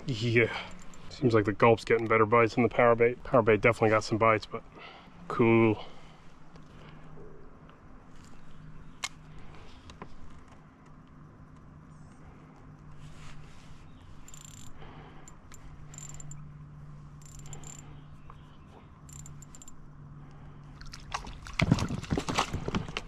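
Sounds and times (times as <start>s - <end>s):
low steady hum: 0.0s - 23.0s
rustling and splashing in weeds: 20.8s - 23.0s.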